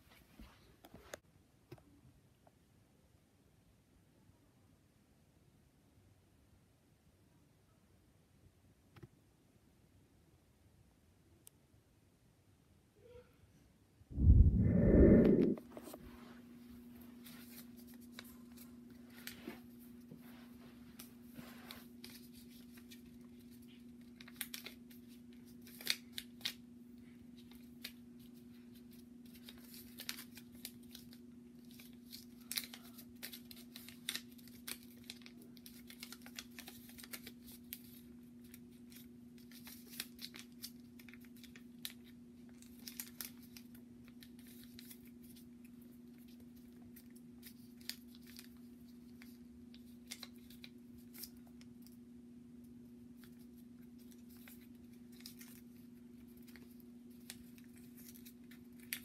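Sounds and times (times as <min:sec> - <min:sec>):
faint steady hum: 0:00.0 - 0:59.0
paper folding and crackling: 0:17.2 - 0:19.8, 0:21.0 - 0:26.6, 0:27.3 - 0:51.7, 0:53.2 - 0:59.0.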